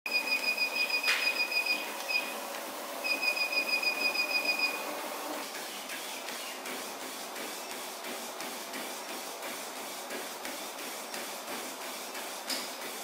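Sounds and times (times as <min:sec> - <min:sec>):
rapid high beeps: 0:00.1 - 0:02.3, 0:03.0 - 0:04.8
treadmill motor and belt running: 0:00.1 - 0:13.0.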